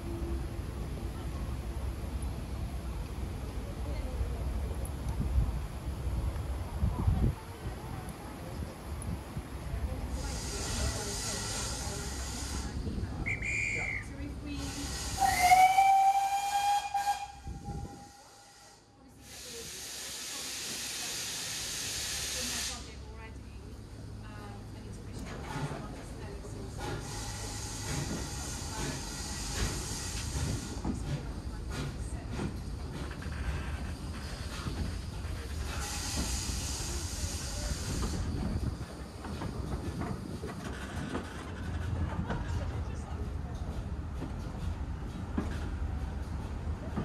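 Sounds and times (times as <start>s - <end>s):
train low rumble: 0.0s - 47.0s
hissing steam: 9.9s - 23.1s, 26.7s - 41.9s
steam locomotive whistle: 13.2s - 18.9s.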